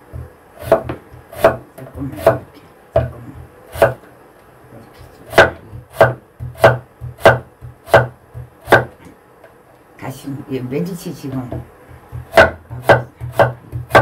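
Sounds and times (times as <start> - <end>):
knife chopping on wooden board: 0.1 - 2.4, 3.0 - 4.0, 5.3 - 9.0, 11.5 - 14.0.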